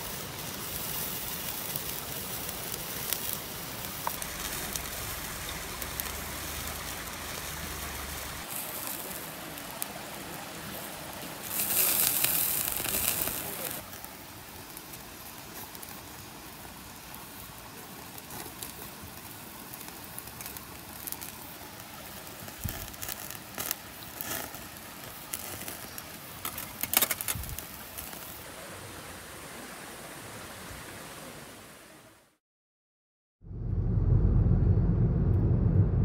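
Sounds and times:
gas stove burner hissing: 0:00.0 - 0:28.4
meat sizzling on grill: 0:00.0 - 0:28.4.

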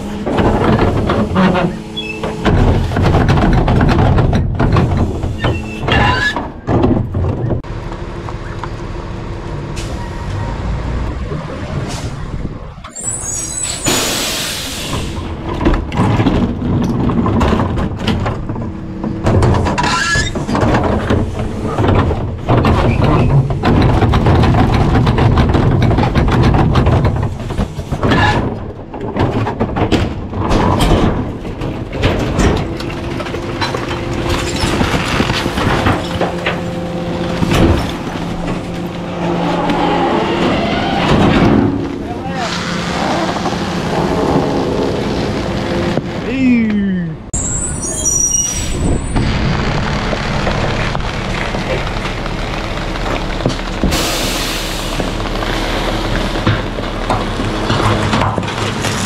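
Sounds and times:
trash crunching clatter: 0:00.0 - 0:46.6, 0:47.3 - 0:59.0
garbage truck engine: 0:00.0 - 0:59.0
air brake hiss: 0:13.6 - 0:15.2, 0:54.0 - 0:55.1.

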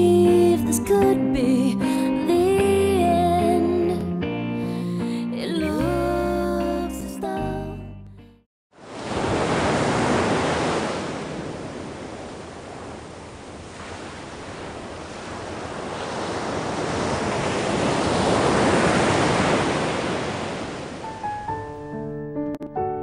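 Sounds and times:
wind: 0:08.7 - 0:21.5
sea surf washing: 0:08.8 - 0:21.7.

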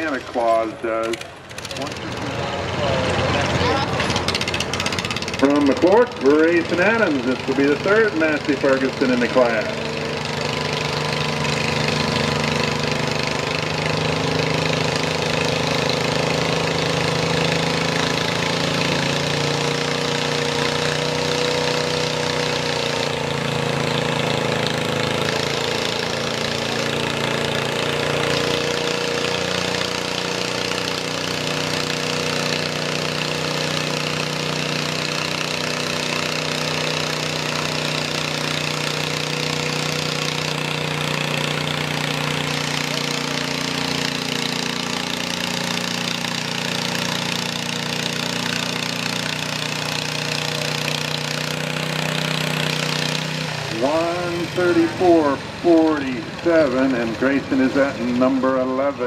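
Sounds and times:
tractor engine under load: 0:00.0 - 0:59.0.

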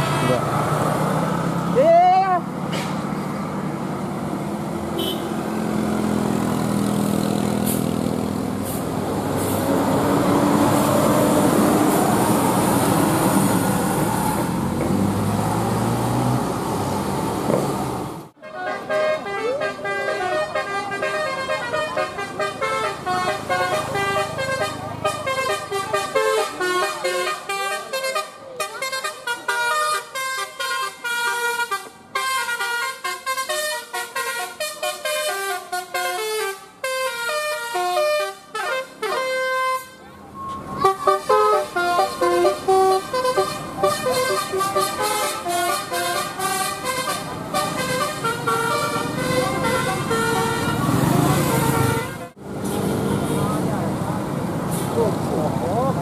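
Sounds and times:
bus engine running: 0:00.0 - 0:56.0
multi-tone air horn melody: 0:05.0 - 0:05.3, 0:18.4 - 0:40.1, 0:40.7 - 0:52.4.

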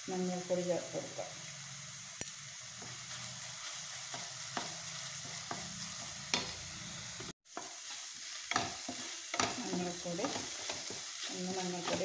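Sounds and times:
vegetables sizzling in a pan: 0:00.0 - 0:12.0
spatula scraping and tapping pan: 0:02.8 - 0:06.6, 0:07.2 - 0:12.0.

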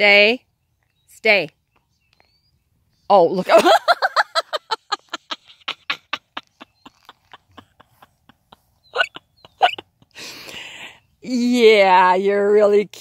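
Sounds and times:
woman laughing: 0:03.4 - 0:10.6.

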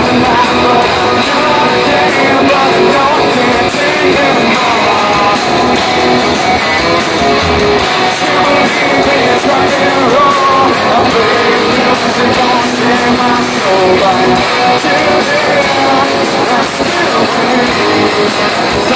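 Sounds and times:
electric guitars: 0:00.0 - 0:18.9
live rock band: 0:00.0 - 0:18.9
person singing: 0:00.0 - 0:18.9.

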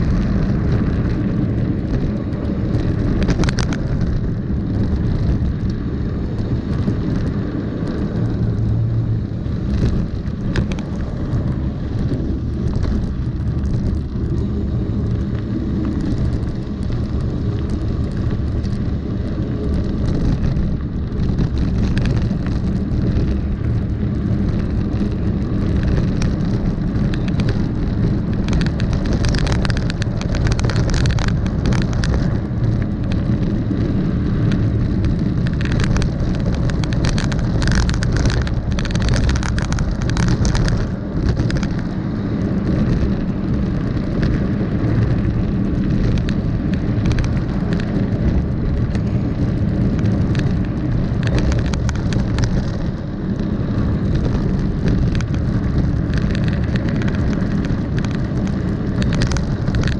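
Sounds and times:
bike rattling and clattering: 0:00.0 - 0:59.9
tyres crunching over gravel: 0:00.0 - 0:59.9
wind buffeting microphone: 0:00.0 - 0:59.9.

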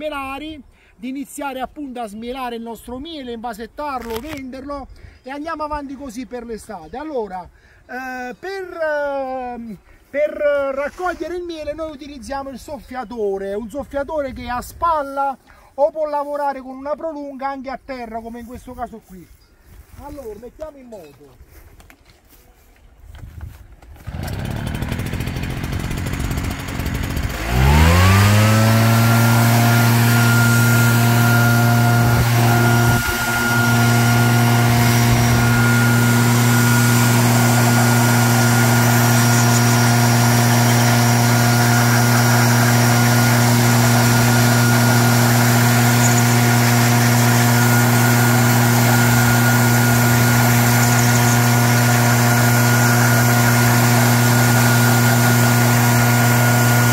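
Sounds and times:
petrol leaf blower running: 0:24.0 - 0:56.9.

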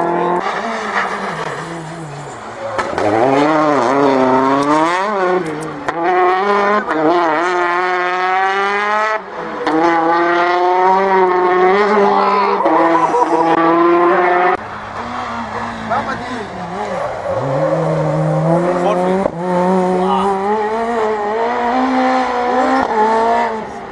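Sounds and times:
rally car engine revving: 0:00.0 - 0:23.9.

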